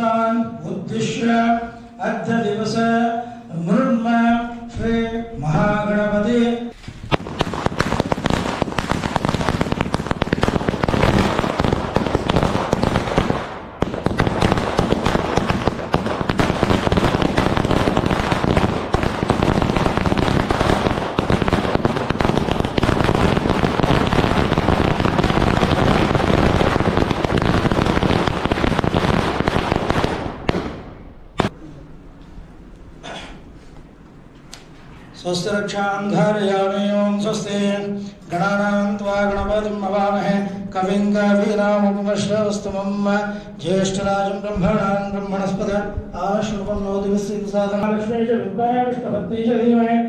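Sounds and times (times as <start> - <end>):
firecrackers banging: 6.7 - 31.6.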